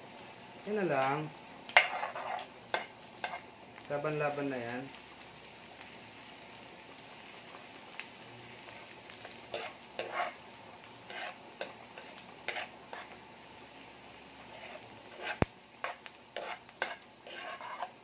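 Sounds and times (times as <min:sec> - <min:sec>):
garlic and onion sizzling in pan: 0:00.0 - 0:18.0
spoon scraping a pan: 0:01.7 - 0:03.5, 0:09.2 - 0:10.4, 0:11.0 - 0:13.2, 0:14.4 - 0:18.0.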